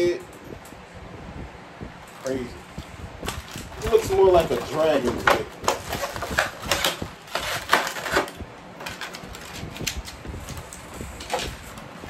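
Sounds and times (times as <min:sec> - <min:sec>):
plastic packaging crinkling: 0:03.2 - 0:12.0.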